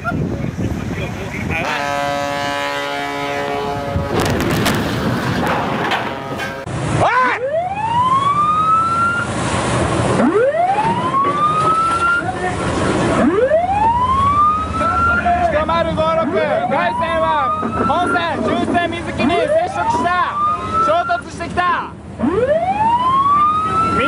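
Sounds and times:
wind noise: 0:00.0 - 0:02.5, 0:03.3 - 0:06.7
rushing sea: 0:00.0 - 0:24.0
ship's horn blast: 0:01.5 - 0:06.8
splashing and scraping: 0:03.4 - 0:06.8
ship's siren winding up: 0:07.3 - 0:09.4, 0:10.1 - 0:12.4, 0:13.0 - 0:15.4, 0:16.2 - 0:18.5, 0:19.2 - 0:21.3, 0:22.2 - 0:24.0.

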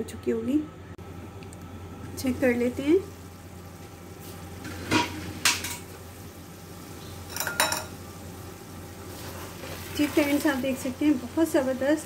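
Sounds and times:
glass lid and utensils clinking pan: 0:07.3 - 0:07.9.

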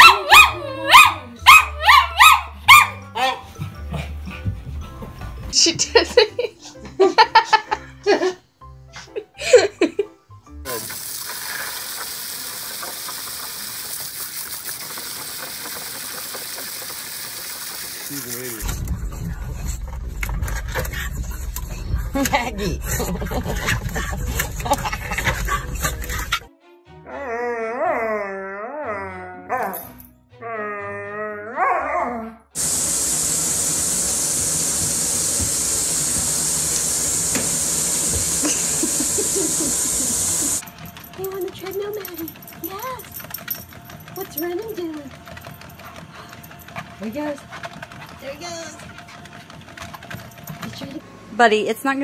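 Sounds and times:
dog howling: 0:00.0 - 0:02.5
water spraying into plastic tub: 0:10.7 - 0:18.7, 0:32.6 - 0:40.6.

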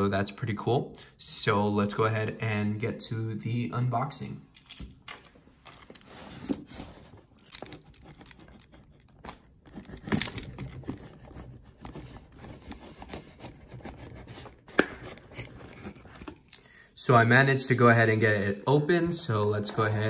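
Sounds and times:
keys jangling: 0:05.6 - 0:11.3
key scraping and tearing tape: 0:07.6 - 0:16.6.

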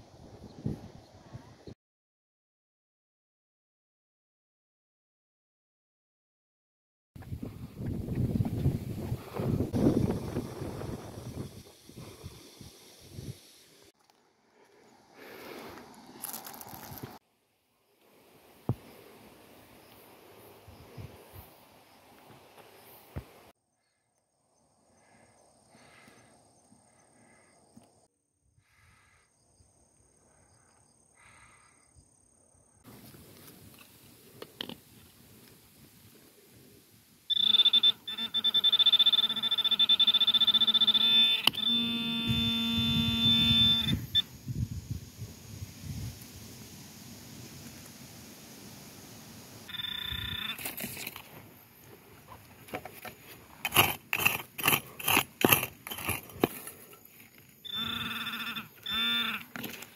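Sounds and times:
digging in soil and leaf litter: 0:13.9 - 0:17.2, 0:44.8 - 0:57.6
hand digger scraping stony soil: 0:16.1 - 0:17.2, 0:50.5 - 0:57.6, 0:59.3 - 0:59.9
thin steady high tone: 0:37.3 - 0:44.4.

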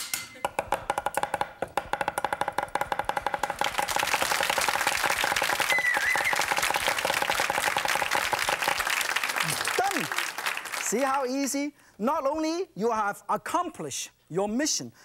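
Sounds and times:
cleavers chopping on wooden board: 0:00.4 - 0:03.9
audience clapping: 0:03.3 - 0:11.6.

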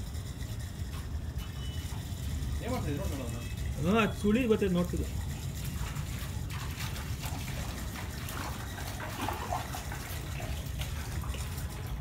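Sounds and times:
water gushing down a drain: 0:03.7 - 0:12.0.

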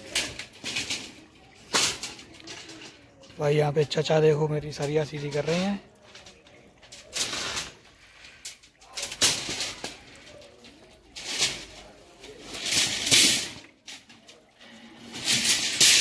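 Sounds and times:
steel rods scraping and rattling: 0:00.0 - 0:16.0.

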